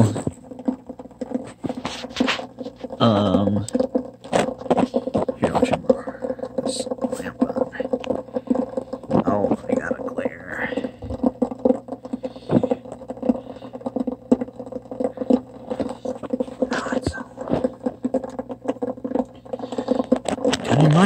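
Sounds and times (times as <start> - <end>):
liquid ticking and crackling: 0.0 - 21.0
low electrical hum: 0.0 - 21.0.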